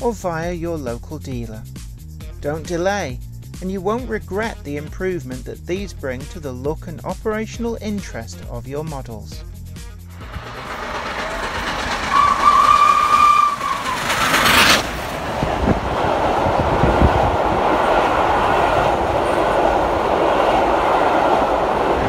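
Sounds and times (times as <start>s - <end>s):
train running: 9.9s - 22.0s
steam hissing: 10.2s - 22.0s
steam train whistle: 10.4s - 14.8s.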